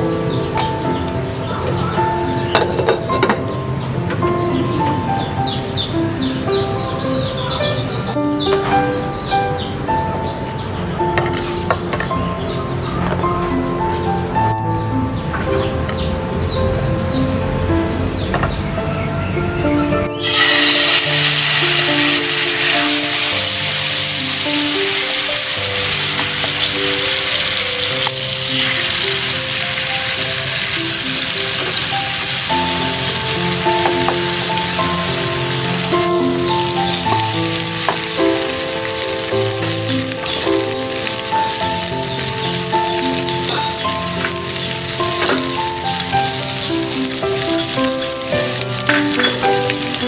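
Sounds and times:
piano background music: 0.0s - 50.0s
oil sizzling in frying pan: 20.2s - 50.0s.

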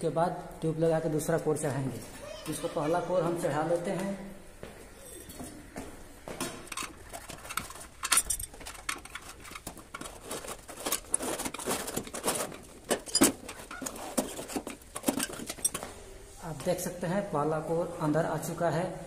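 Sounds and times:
metal tyre levers clinking on rim: 5.0s - 5.7s, 6.6s - 16.0s.

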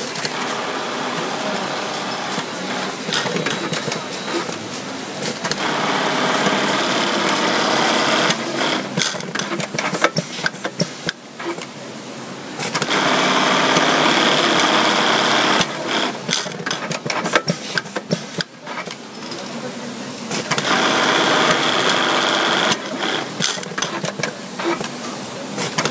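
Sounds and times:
sewing machine running fast: 0.0s - 3.8s, 5.4s - 10.0s, 12.7s - 17.2s, 20.3s - 24.8s.

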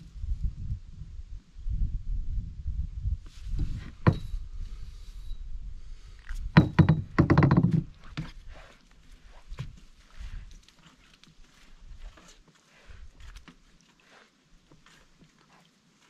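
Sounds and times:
knocks on a canoe: 4.0s - 4.3s, 6.5s - 8.3s.

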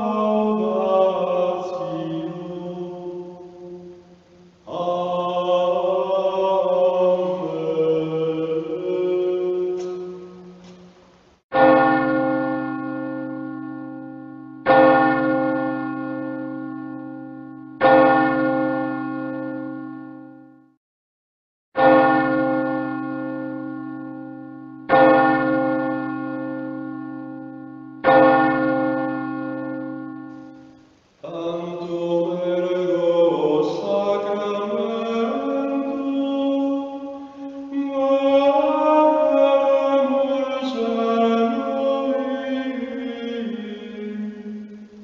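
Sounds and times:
chanted singing: 0.0s - 10.9s, 31.2s - 45.0s
church bell ringing: 0.0s - 20.8s, 21.8s - 45.0s.

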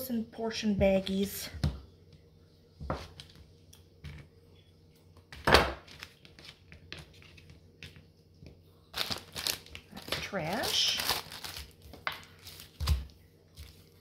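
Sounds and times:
plastic wrapper crinkling: 8.9s - 14.0s.

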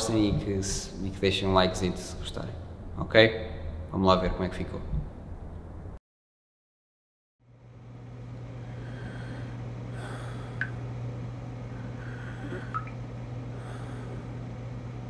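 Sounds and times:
low hum with hiss: 0.0s - 6.0s, 7.4s - 15.0s.

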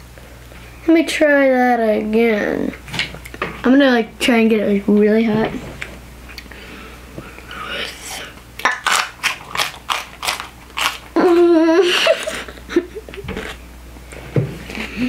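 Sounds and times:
child crunching pepper: 8.6s - 12.5s
child wavering vocal sound: 11.2s - 12.2s.

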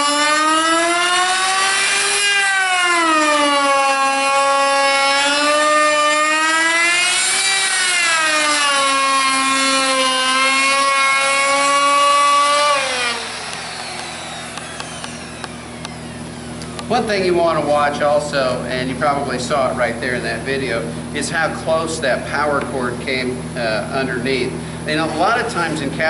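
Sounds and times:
router motor whine: 0.0s - 17.7s.

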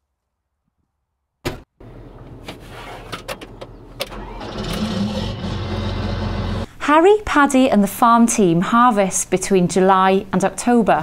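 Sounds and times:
diesel engine running: 3.4s - 6.7s.

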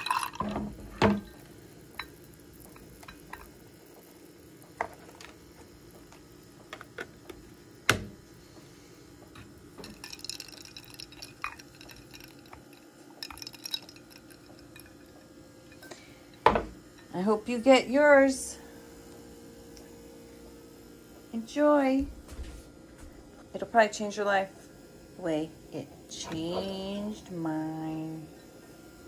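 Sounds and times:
ice cubes cracking in mug: 0.0s - 0.5s, 9.8s - 15.0s
faint steady hum: 0.0s - 29.0s.

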